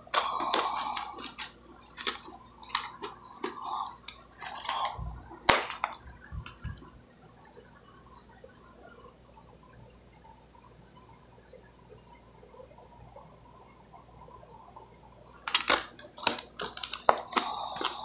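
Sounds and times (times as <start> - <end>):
scissors cutting plastic: 0.0 - 6.8, 15.5 - 18.0
plastic snapping and crinkling: 0.0 - 6.9, 15.4 - 18.0.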